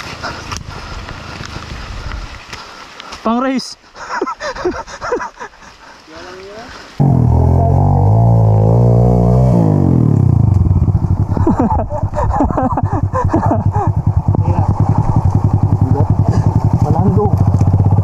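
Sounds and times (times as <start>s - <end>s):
dirt bike engine revving: 7.0s - 18.0s.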